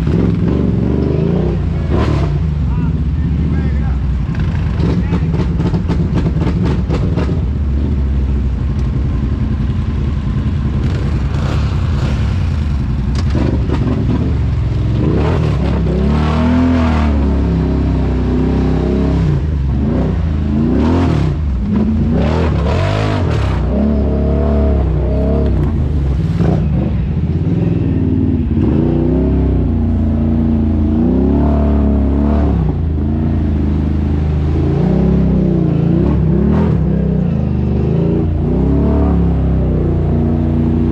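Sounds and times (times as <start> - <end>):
quad bike engine revving: 0.0 - 8.3, 10.6 - 40.9.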